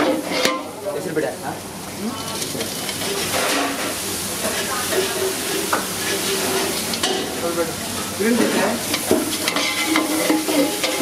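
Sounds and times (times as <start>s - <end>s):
metal ladle scraping pan: 0.0s - 0.7s, 2.4s - 7.3s, 8.3s - 11.0s
food sizzling in a pan: 0.0s - 11.0s.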